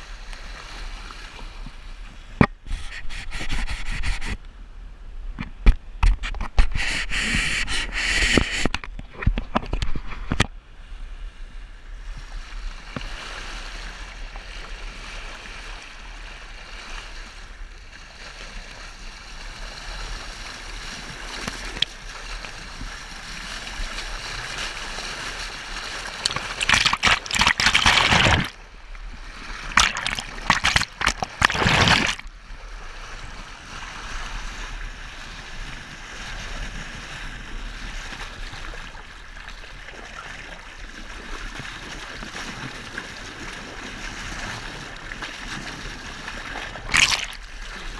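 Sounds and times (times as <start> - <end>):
water rushing along a hull: 0.0 - 4.4, 11.1 - 47.9
bow wave splashing: 23.4 - 32.6, 45.2 - 47.9.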